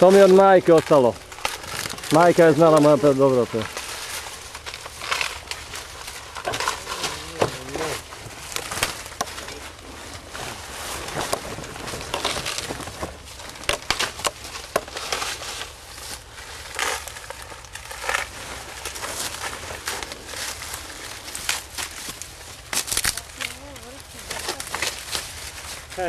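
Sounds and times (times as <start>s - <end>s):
dry corn husks crackling: 0.0s - 26.0s.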